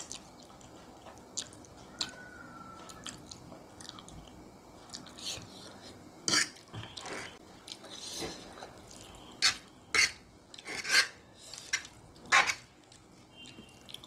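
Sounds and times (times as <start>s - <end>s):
fork scraping on a plate: 6.2s - 8.3s, 9.4s - 12.7s.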